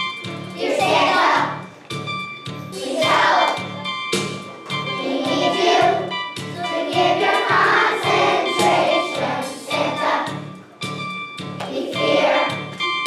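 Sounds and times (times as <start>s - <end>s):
accompaniment with bass beat: 0.0s - 13.0s
children's choir singing: 0.5s - 1.7s, 2.7s - 3.8s, 4.8s - 10.4s, 11.6s - 13.0s.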